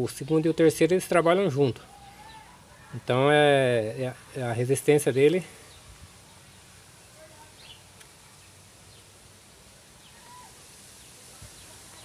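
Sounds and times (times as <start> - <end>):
faint outdoor background noise: 0.0 - 12.0
distant bird chirps: 5.2 - 9.2.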